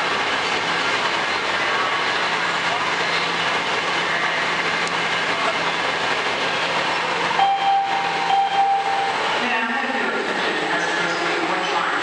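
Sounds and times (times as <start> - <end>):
steady tone: 7.4 - 9.7.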